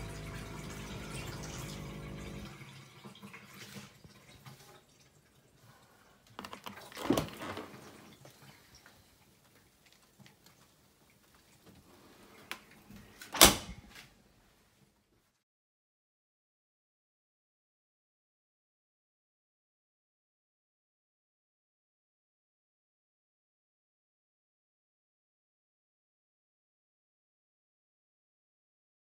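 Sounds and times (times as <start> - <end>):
dishwasher pump humming: 0.0 - 4.9
water moving: 0.0 - 13.1
dishwasher door opening: 6.9 - 8.1, 13.0 - 14.0
door shutting with thump: 13.3 - 13.8.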